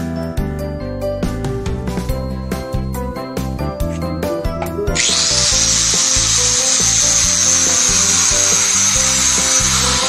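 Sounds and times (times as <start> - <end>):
angle grinder whining: 4.0 - 10.0.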